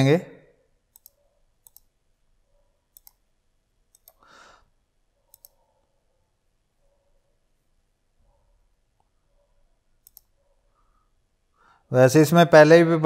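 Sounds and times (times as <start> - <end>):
computer mouse button clicks: 3.0 - 3.2, 5.3 - 5.6.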